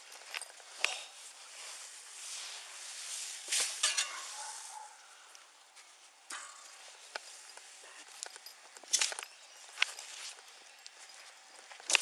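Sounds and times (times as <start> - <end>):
shovel scraping dirt: 2.2 - 4.9, 11.8 - 12.0.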